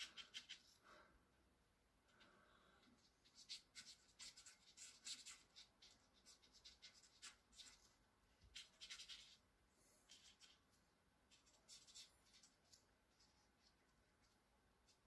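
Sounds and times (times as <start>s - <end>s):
felt-tip pen scratching on paper: 0.0s - 0.8s, 3.0s - 9.4s, 11.3s - 13.7s.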